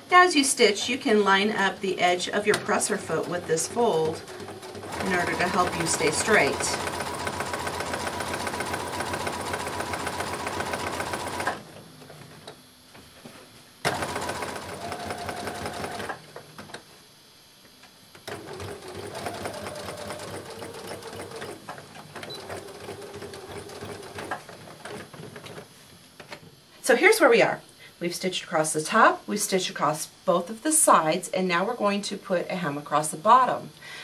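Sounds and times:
sewing machine stitching: 0:02.4 - 0:11.6, 0:13.9 - 0:16.2, 0:18.2 - 0:25.6.

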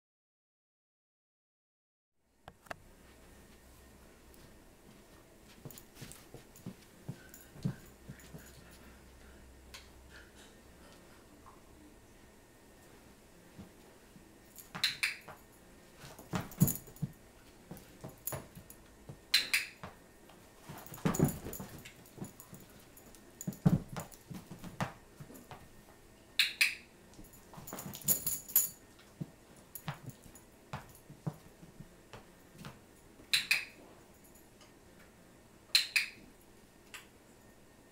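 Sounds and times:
dog thumping on carpet: 0:05.5 - 0:08.6, 0:16.0 - 0:19.2, 0:20.6 - 0:25.6, 0:27.5 - 0:28.4, 0:29.2 - 0:32.8.

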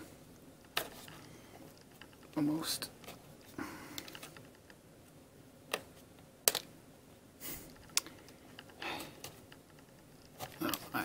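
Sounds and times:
sharp plastic clicks: 0:07.7 - 0:08.8.

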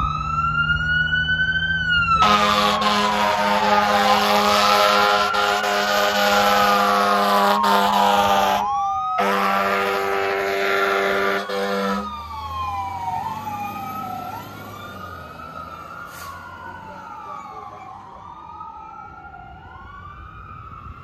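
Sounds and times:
electronic siren wailing: 0:00.0 - 0:21.0
truck engine: 0:00.0 - 0:21.0
air horn blasting: 0:02.2 - 0:12.1.

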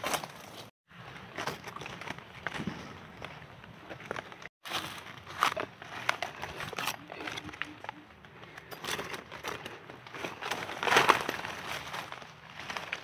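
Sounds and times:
dry leaves rustling and crackling: 0:04.1 - 0:13.0
loud leaf crunch: 0:04.6 - 0:13.0.

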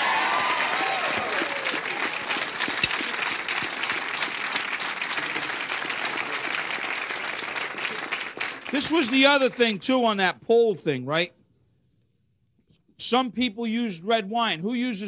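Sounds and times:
faint whoops: 0:00.0 - 0:02.5
audience applauding: 0:00.0 - 0:09.7.

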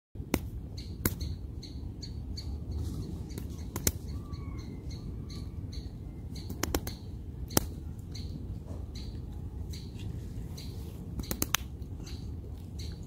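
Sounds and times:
sharp clicks: 0:03.4 - 0:04.1, 0:06.4 - 0:08.3, 0:11.2 - 0:11.9.

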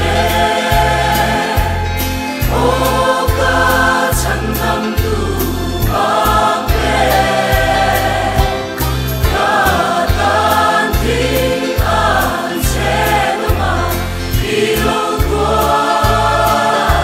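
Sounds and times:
choir singing a hymn: 0:00.0 - 0:17.0
instrumental accompaniment bass notes: 0:00.0 - 0:17.0.

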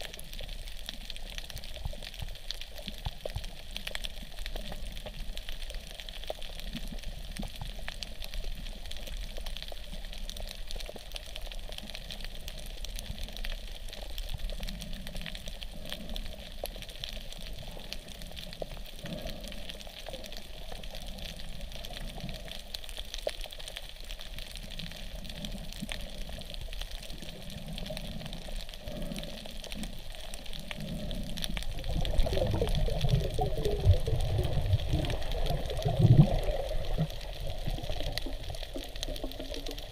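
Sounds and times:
underwater hiss and crackling: 0:00.0 - 0:39.9
low water surges: 0:25.0 - 0:39.9.

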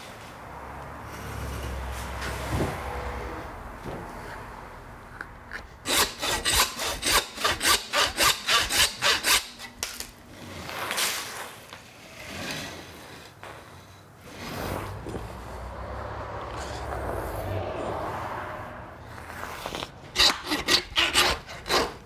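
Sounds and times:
hand saw cutting: 0:05.5 - 0:11.3, 0:19.3 - 0:22.0.

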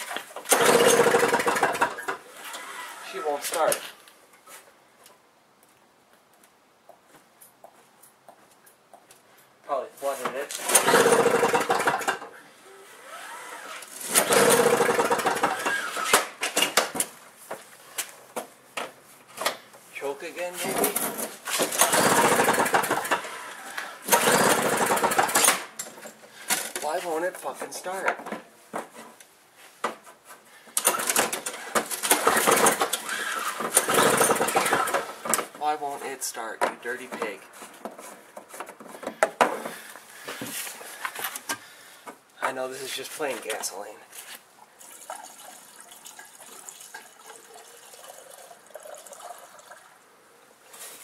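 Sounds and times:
snowblower engine turning over: 0:00.4 - 0:03.7, 0:10.5 - 0:12.4, 0:13.1 - 0:16.4, 0:20.7 - 0:26.9, 0:30.8 - 0:35.6.

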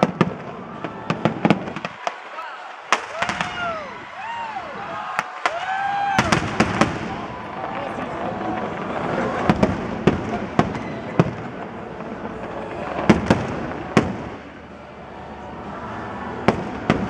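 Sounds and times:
firework crackle and hiss: 0:05.4 - 0:14.8.

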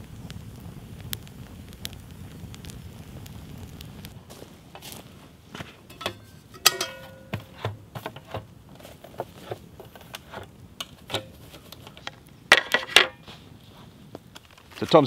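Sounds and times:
metal pot clanking: 0:05.6 - 0:08.5, 0:09.4 - 0:13.2.

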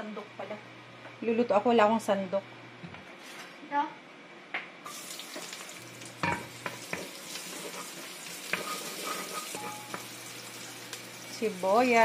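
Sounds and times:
garlic sizzling in oil: 0:04.9 - 0:12.0.

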